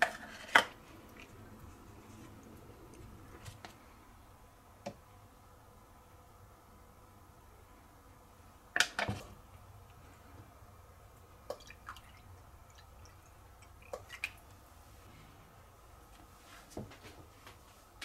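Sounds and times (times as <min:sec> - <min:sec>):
liquid dripping and splashing: 0:11.4 - 0:14.6.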